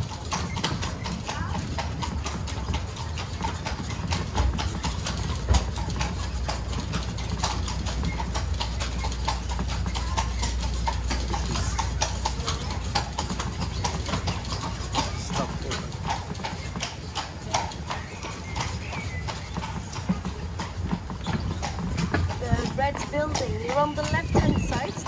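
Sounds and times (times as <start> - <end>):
horse hooves on cobblestones: 0.0 - 25.0
low steady rumble: 4.2 - 20.5.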